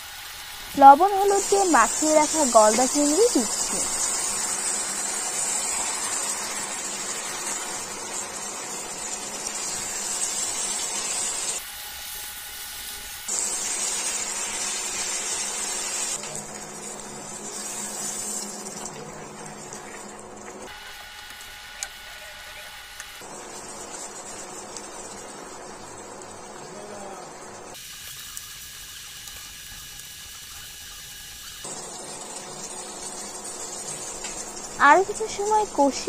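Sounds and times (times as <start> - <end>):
prawns sizzling in frying pan: 0.0 - 36.0.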